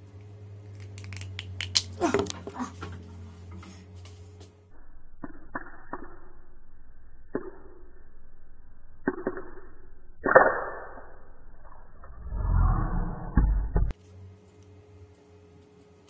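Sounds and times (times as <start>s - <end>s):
shell pieces crunching in hand: 0.7s - 2.0s
walnut shell cracking in a fist: 0.7s - 2.4s.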